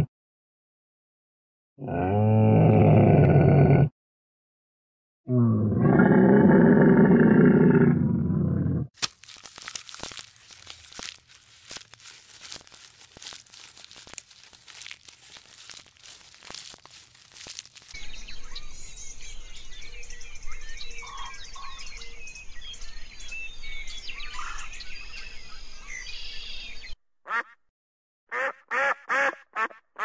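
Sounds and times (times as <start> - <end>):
giraffe chewing leaves: 9.0 - 18.0
small birds chirping: 9.2 - 27.0.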